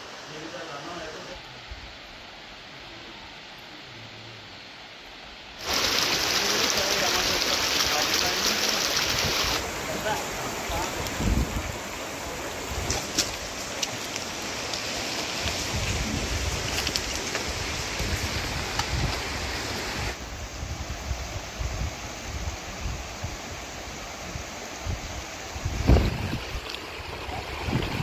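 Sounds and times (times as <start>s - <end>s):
stream running over rocks: 0.0s - 1.5s, 5.5s - 28.0s
wind buffeting microphone: 10.6s - 11.9s, 15.4s - 23.6s, 24.3s - 28.0s.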